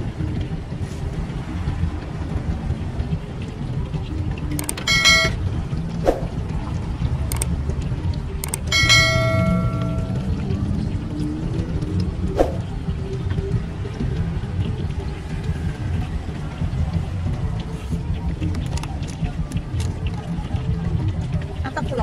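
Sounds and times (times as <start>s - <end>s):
steady low rumble: 0.0s - 22.0s
button clicks: 4.6s - 5.4s
bright bell chime: 4.8s - 5.4s, 8.7s - 10.4s.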